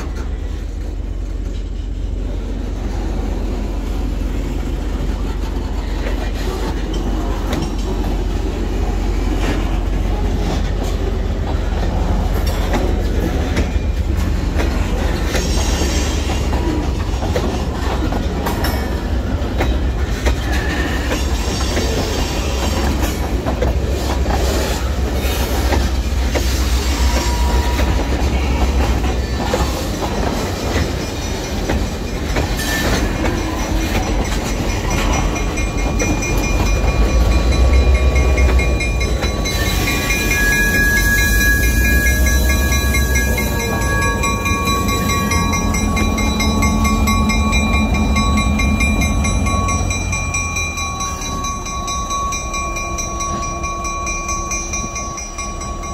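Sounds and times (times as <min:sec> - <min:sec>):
diesel locomotive whine: 0:00.0 - 0:55.9
freight train rumbling past: 0:00.0 - 0:55.9
wheels clicking over rail joints: 0:04.4 - 0:55.9
wheel squeals: 0:24.5 - 0:52.0.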